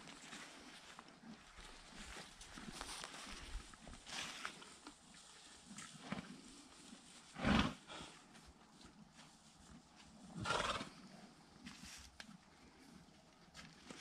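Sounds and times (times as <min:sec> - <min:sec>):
horse snorting breathy blasts: 0:10.4 - 0:11.0.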